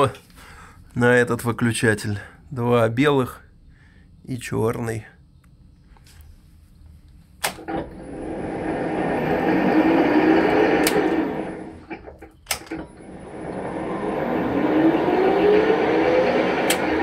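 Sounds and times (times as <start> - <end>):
lathe switch clicking: 7.4 - 7.9, 10.5 - 11.3, 11.9 - 12.9, 16.6 - 17.0
lathe motor whine: 7.6 - 17.0.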